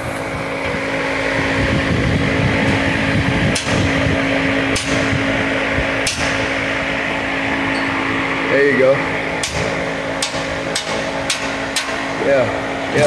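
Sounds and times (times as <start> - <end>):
fan running with a hum: 0.0 - 13.0
sharp light knocks: 9.4 - 12.0.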